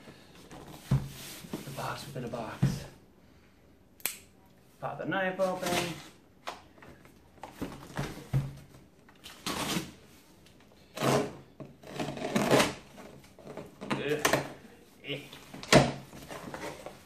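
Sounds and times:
cardboard scraping and rustling: 15.4 - 17.0.

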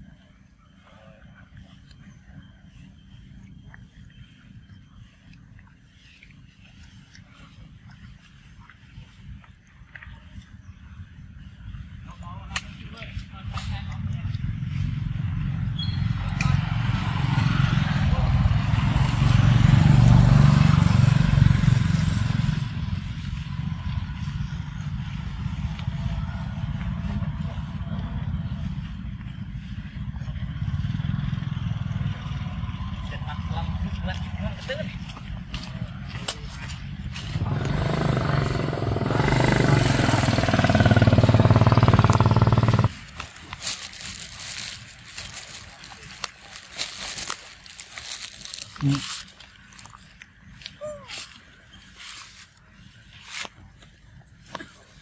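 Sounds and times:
engine running with even pulse: 0.0 - 12.4, 13.1 - 50.6
steady low rumble: 0.0 - 50.9
vehicle passing close by: 14.5 - 34.5, 37.2 - 43.2.

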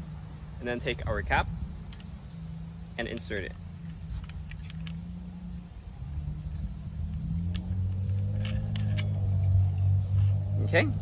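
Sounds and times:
low engine rumble: 0.0 - 11.0
nut threading clicks: 3.0 - 5.2, 7.0 - 9.4.

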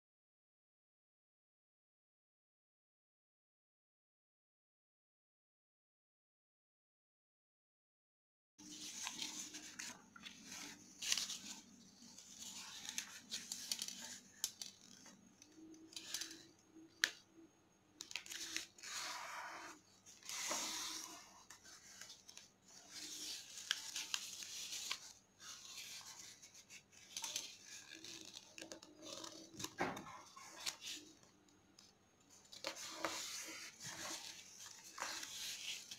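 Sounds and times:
paper rustling and crinkling: 8.6 - 17.2, 18.0 - 35.9
paper crease snap: 8.8 - 16.4.

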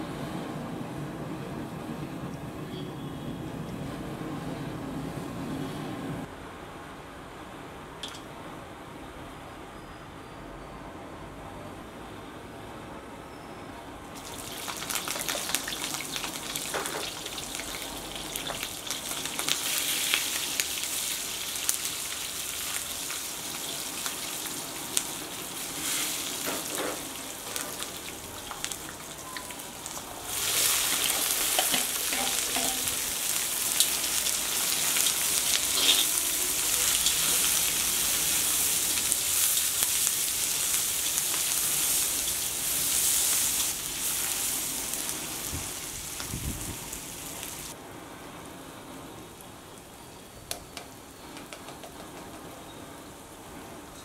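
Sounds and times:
food sizzling in hot oil: 14.2 - 47.8.

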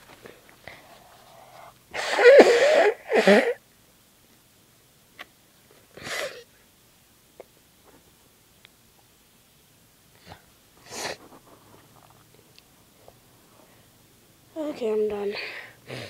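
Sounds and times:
woman sneezing: 1.9 - 3.6
breathy inhale: 15.4 - 16.0.

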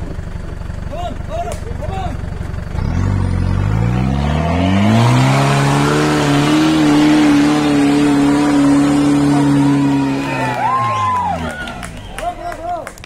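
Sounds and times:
engine revving under load: 2.5 - 12.8.

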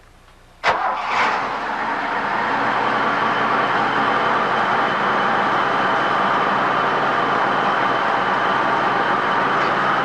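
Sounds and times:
sawmill machinery running: 0.7 - 10.0.

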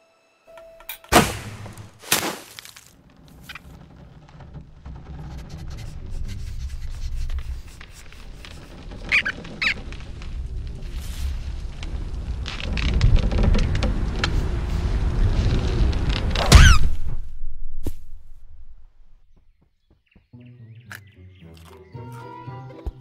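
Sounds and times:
sharp hit: 1.1 - 2.5
low rumble: 3.0 - 19.4
short high squeaks: 5.2 - 10.0, 16.4 - 17.0.

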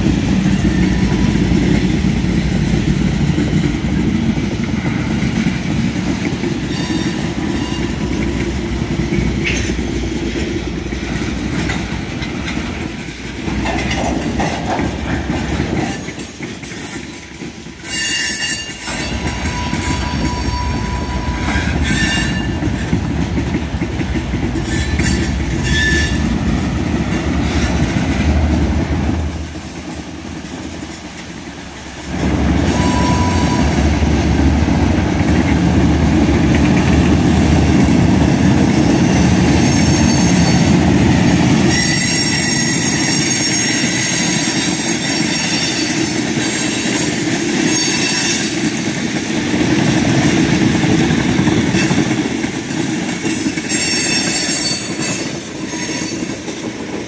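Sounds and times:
freight cars rumbling on rails: 0.0 - 57.0
high wheel squeals: 6.6 - 8.2, 17.8 - 22.9, 24.6 - 26.3, 32.6 - 34.0, 39.4 - 40.8, 41.6 - 46.9, 47.6 - 48.6, 53.5 - 56.4.

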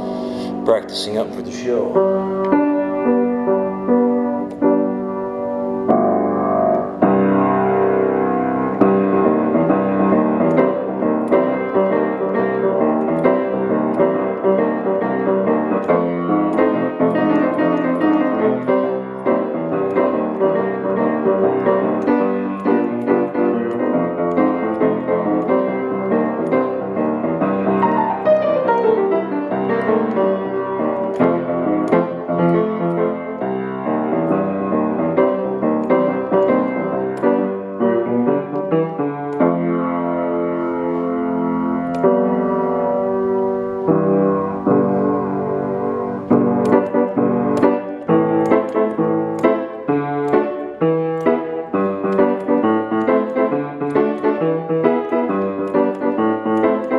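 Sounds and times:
person speaking: 0.0 - 2.3, 27.7 - 31.2
boogie-woogie piano playing: 0.0 - 56.9.

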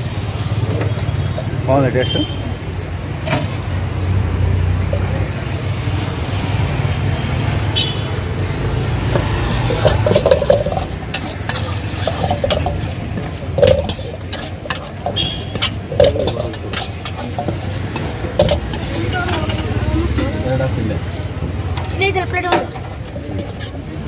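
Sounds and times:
food sizzling in a wok: 8.6 - 23.6
ladle scraping and clanking wok: 8.8 - 24.0.

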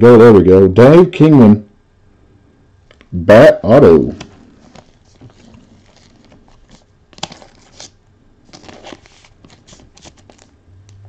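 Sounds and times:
cards rustling and scraping: 4.1 - 10.5.

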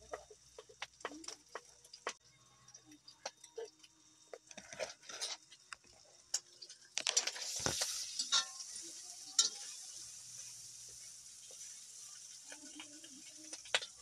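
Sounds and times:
meat sizzling in a wok: 0.0 - 14.0
spoon scraping pan: 4.3 - 14.0.

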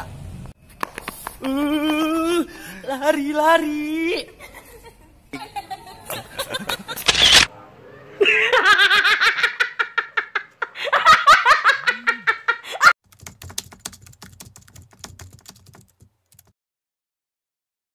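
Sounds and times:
young woman laughing: 4.4 - 7.4, 8.2 - 13.0
faint rapid clicking: 13.1 - 16.5.

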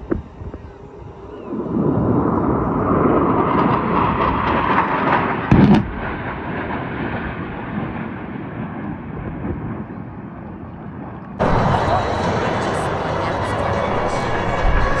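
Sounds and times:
jets roaring overhead: 0.0 - 9.9, 11.4 - 15.0
sharp explosion: 3.5 - 8.4.

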